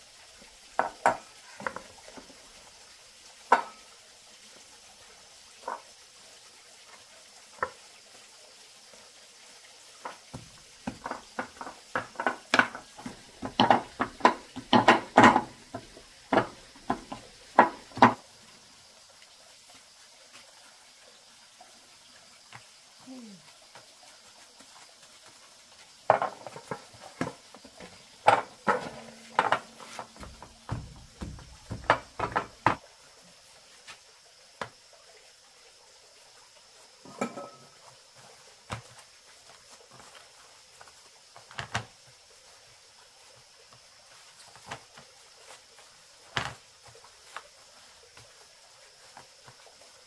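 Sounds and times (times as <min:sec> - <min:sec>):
kitchen utensils clacking: 0:12.2 - 0:18.2, 0:28.2 - 0:32.8, 0:37.1 - 0:37.7.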